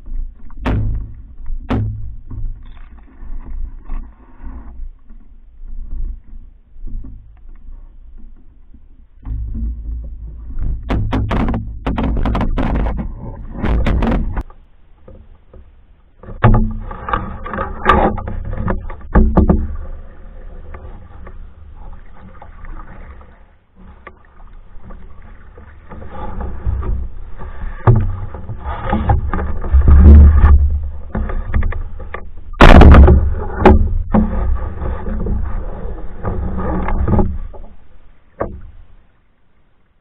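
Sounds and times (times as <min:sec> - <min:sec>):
paddle strokes in water: 0:00.0 - 0:40.0
sharp knocks: 0:00.6 - 0:02.9, 0:09.2 - 0:14.4, 0:28.9 - 0:35.4.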